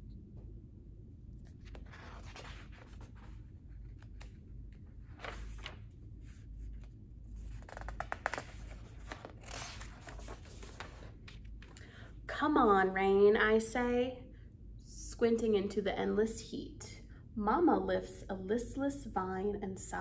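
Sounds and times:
book pages rustling and flapping: 1.4 - 11.8.

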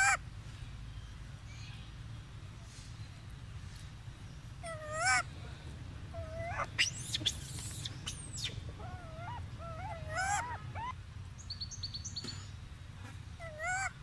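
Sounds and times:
baby monkey crying: 4.6 - 5.3, 6.1 - 11.0, 13.4 - 14.0.

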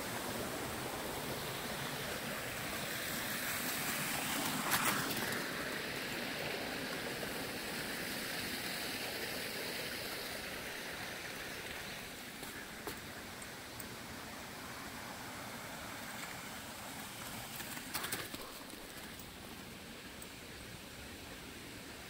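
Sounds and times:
stream running water: 0.0 - 22.0
crackling rustle: 2.7 - 6.2, 16.0 - 20.4.

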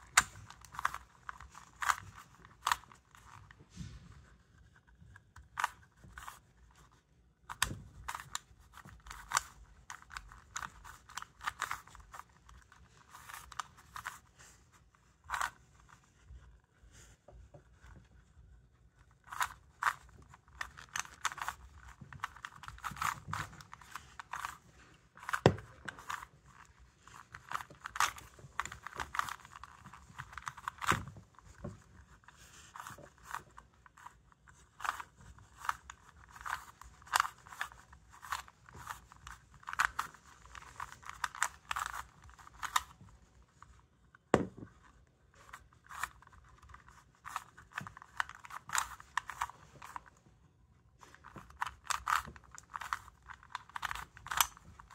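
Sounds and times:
puzzle cube clicking: 0.0 - 3.5, 7.5 - 14.4, 15.2 - 16.0, 19.2 - 43.1, 45.4 - 50.2, 51.0 - 54.9.

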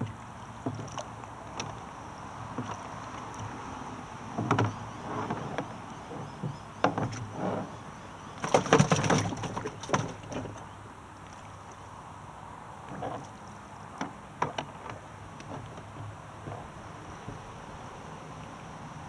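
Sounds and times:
plastic kayak hull knocking and rattling: 4.3 - 7.4, 8.4 - 10.7, 14.0 - 17.6.

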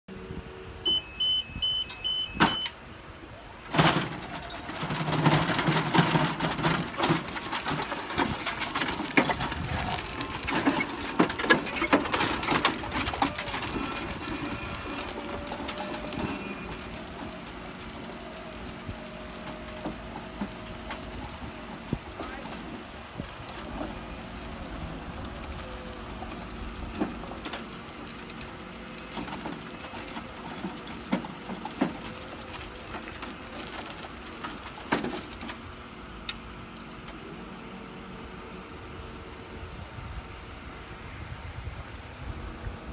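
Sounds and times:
lift beeping: 0.7 - 5.4
wheels crunching on gravel: 0.9 - 42.9
frame clattering: 3.7 - 17.2
faint motor whine: 9.3 - 42.9.

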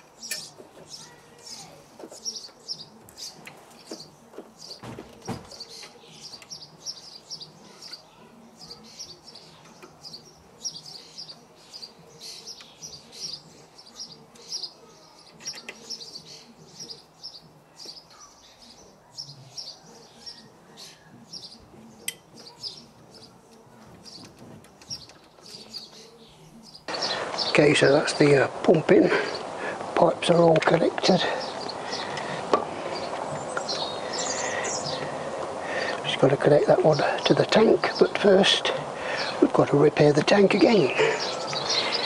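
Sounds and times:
small birds chirping: 0.0 - 42.0.

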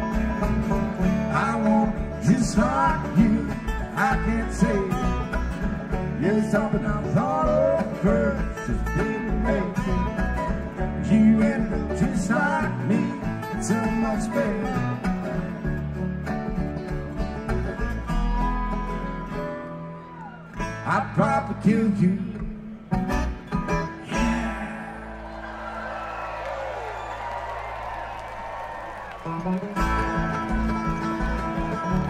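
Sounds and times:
banjo picking: 0.0 - 20.0, 22.4 - 24.6, 29.6 - 32.0
bluegrass band playing: 0.0 - 25.9, 29.1 - 32.0
sliding lead melody: 29.7 - 32.0.

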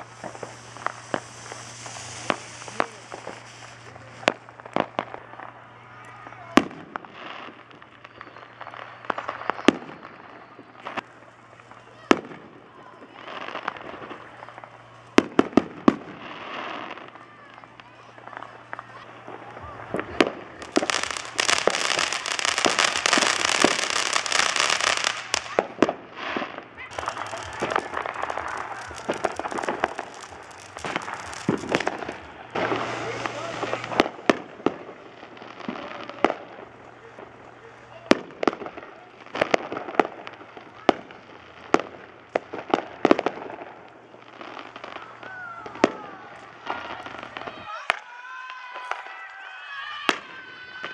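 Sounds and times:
sharp firework bangs: 0.0 - 5.4, 13.2 - 48.0
fireworks crackling: 0.0 - 50.9.

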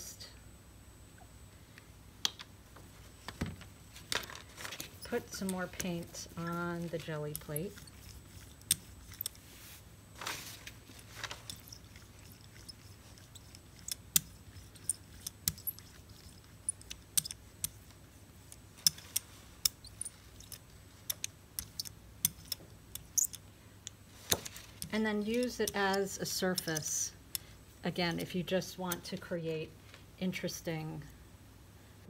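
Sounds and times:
brayer rolling sticky paint: 4.0 - 23.4.

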